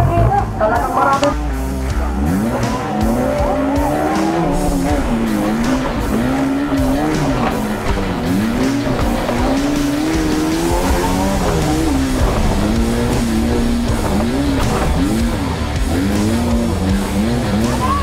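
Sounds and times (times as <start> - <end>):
background music: 0.0 - 18.0
engine revving: 0.0 - 18.0.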